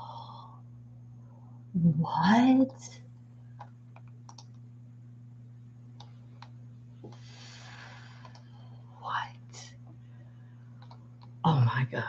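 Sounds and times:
low electrical hum: 0.0 - 12.0
keyboard and mouse clicks: 3.6 - 4.6, 8.2 - 8.5, 10.8 - 11.4
soft breath out: 7.1 - 8.9.

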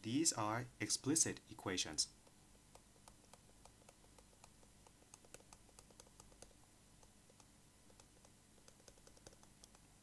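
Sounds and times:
stylus tapping on tablet: 2.1 - 9.9.

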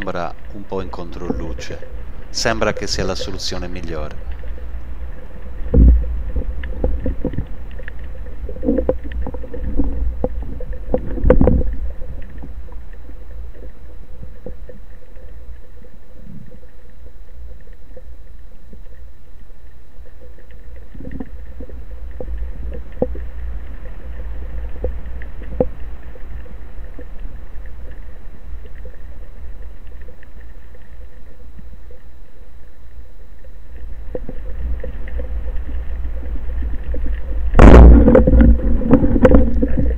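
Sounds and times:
underwater rumble of moving water: 0.0 - 39.9
underwater clicks and knocks: 5.6 - 15.7, 20.0 - 28.0, 34.0 - 39.9.

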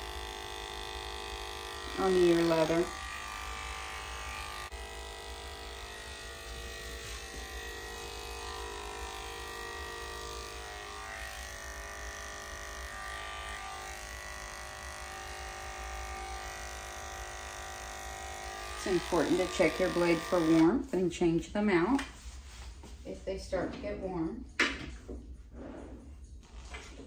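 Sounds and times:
electric clippers humming: 0.0 - 20.9.

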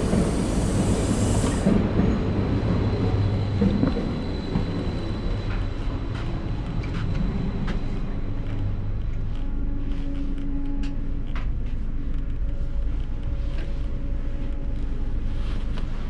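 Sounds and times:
high hiss: 0.0 - 1.7
standing train hum and rumble: 0.0 - 16.0.

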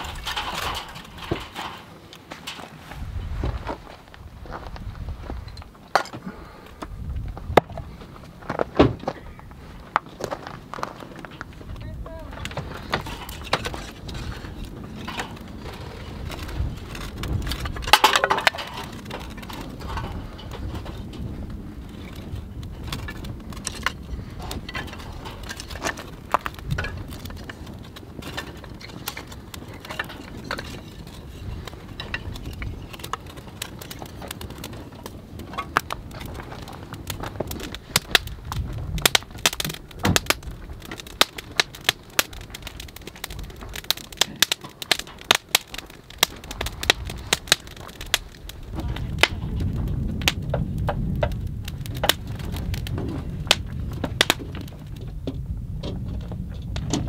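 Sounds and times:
campfire crackling and popping: 0.0 - 57.0.

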